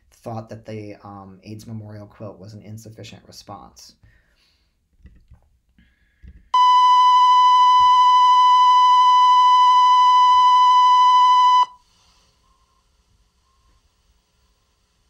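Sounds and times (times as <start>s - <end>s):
high electronic test tone: 6.6s - 11.8s.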